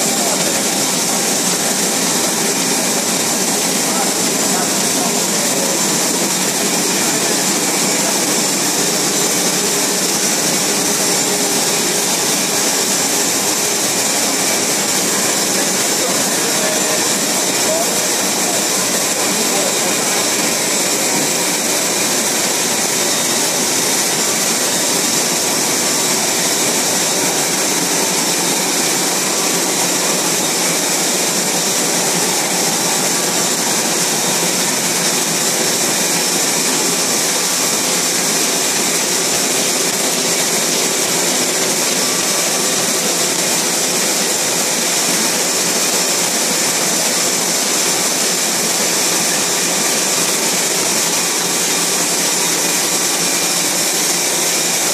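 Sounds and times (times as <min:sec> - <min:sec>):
printing press running: 0:00.0 - 0:54.9.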